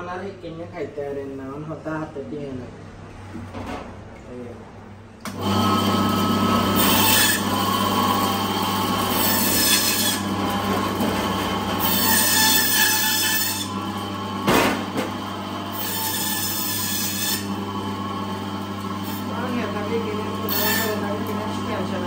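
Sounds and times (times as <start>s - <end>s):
band saw humming: 5.3s - 22.0s.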